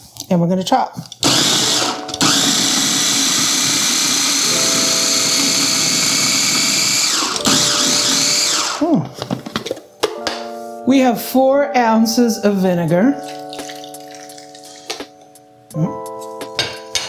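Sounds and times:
mini chopper motor running: 0:01.3 - 0:08.8.

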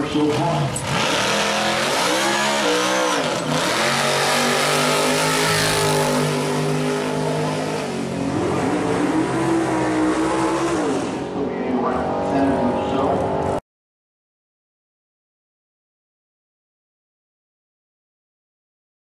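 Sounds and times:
drag car engine at full throttle: 0:00.0 - 0:13.6.

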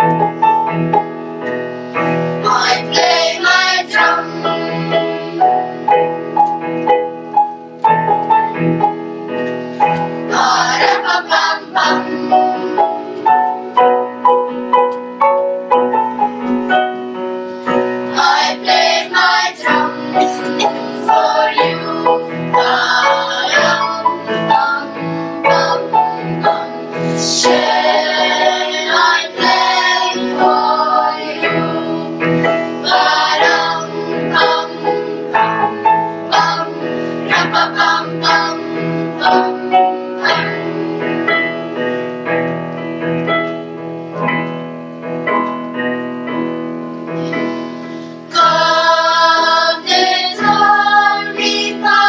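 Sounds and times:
piano accompaniment: 0:00.0 - 0:52.0
children's choir singing: 0:02.4 - 0:06.2, 0:09.8 - 0:14.0, 0:18.0 - 0:41.8, 0:48.2 - 0:52.0.

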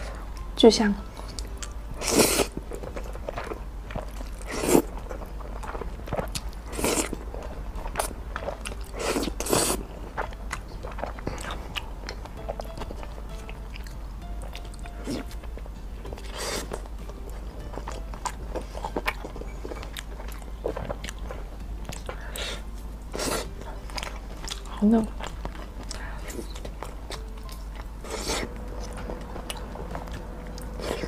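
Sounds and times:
slurping noodles: 0:02.0 - 0:02.6, 0:04.4 - 0:04.9, 0:06.7 - 0:07.2, 0:09.0 - 0:09.8, 0:28.0 - 0:28.5.

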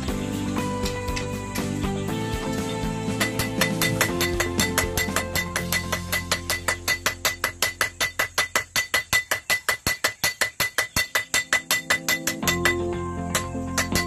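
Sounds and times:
hammers striking steel on anvil: 0:03.1 - 0:14.0.

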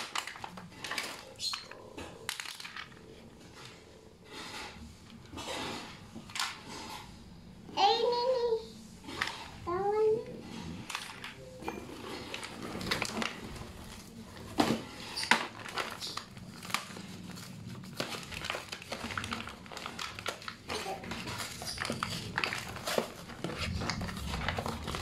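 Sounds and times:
plastic bag crinkling: 0:00.0 - 0:03.7, 0:10.9 - 0:25.0
plastic toys clicking and knocking: 0:00.0 - 0:03.8, 0:10.8 - 0:17.0, 0:17.8 - 0:25.0.

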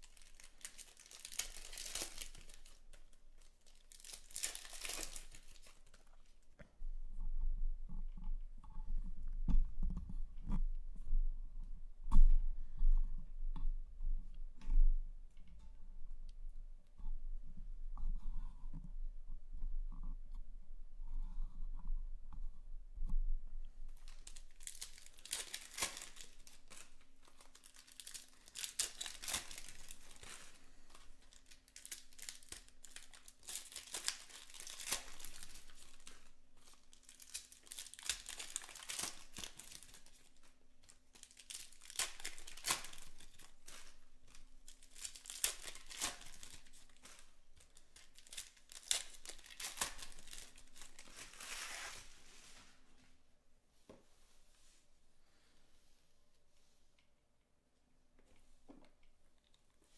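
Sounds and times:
card pack wrappers crinkling: 0:00.0 - 0:06.4, 0:23.9 - 0:52.2.

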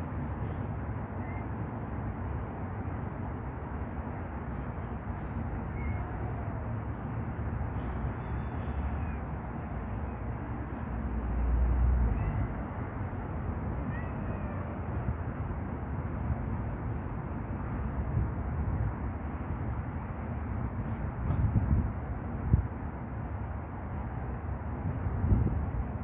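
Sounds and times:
cats meowing faintly: 0:05.6 - 0:07.1, 0:12.0 - 0:12.9, 0:13.7 - 0:15.3.

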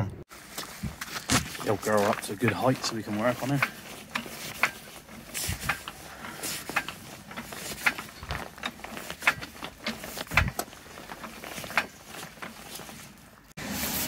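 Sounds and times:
trolley jack clicking: 0:01.9 - 0:13.1
dull thumps: 0:06.6 - 0:12.6.

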